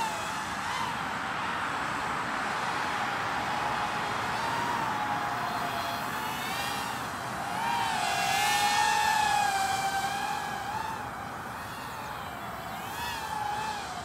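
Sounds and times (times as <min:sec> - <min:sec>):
drone motors whining: 0:00.0 - 0:14.0.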